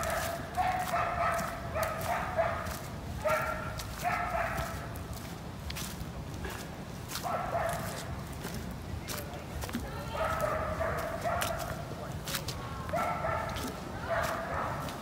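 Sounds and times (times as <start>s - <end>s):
dog barking: 0.0s - 4.9s, 7.2s - 8.1s, 10.1s - 11.8s, 12.9s - 15.0s.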